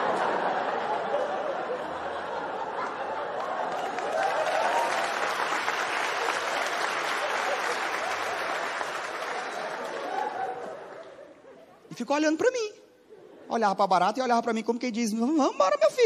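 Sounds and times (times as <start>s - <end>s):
audience laughter: 0.0s - 4.8s, 6.2s - 11.8s
audience applauding: 3.0s - 11.2s.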